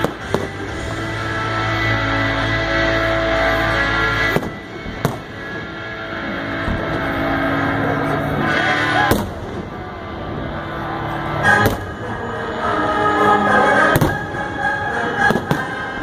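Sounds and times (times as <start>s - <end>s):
firework crackles: 0.0s - 1.8s, 3.0s - 7.6s, 13.9s - 16.0s
music: 0.0s - 16.0s.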